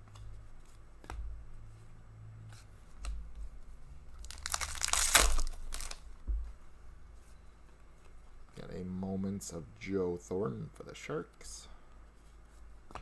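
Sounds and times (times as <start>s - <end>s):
cards being handled: 4.2s - 6.0s
wrapper crinkling tear: 4.2s - 6.0s.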